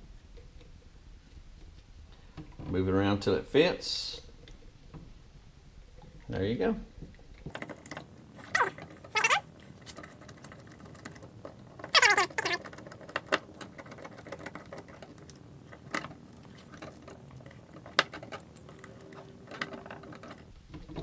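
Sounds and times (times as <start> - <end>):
short falling squeaks: 8.5 - 9.5, 11.9 - 12.6.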